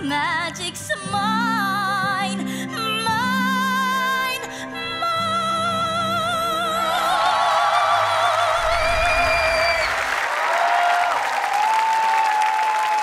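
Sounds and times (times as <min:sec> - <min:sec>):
audience applause and cheering: 0:06.9 - 0:13.0.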